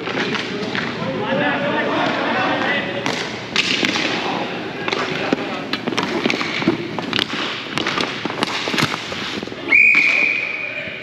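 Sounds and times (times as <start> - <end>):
murmur of voices: 0.0 - 6.0
long whistle blast: 9.7 - 10.7.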